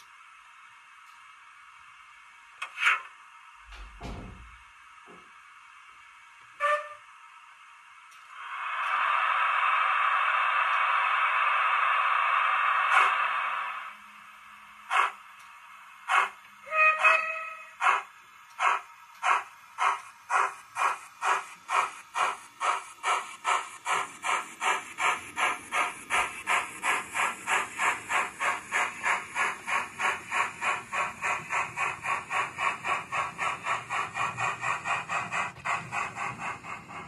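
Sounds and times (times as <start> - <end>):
model steam engine chuffs: 8.3 - 14.0, 14.6 - 37.0.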